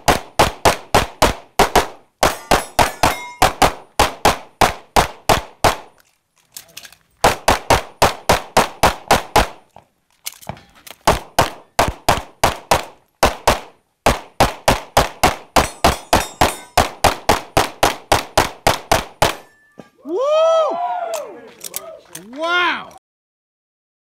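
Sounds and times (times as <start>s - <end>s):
rapid pistol shots: 0.0s - 5.9s, 7.2s - 9.6s, 11.0s - 19.5s.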